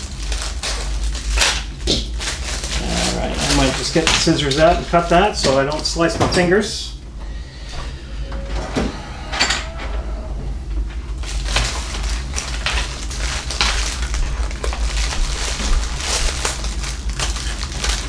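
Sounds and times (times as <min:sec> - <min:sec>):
plastic packaging crinkling: 0:00.0 - 0:06.1, 0:11.1 - 0:18.0.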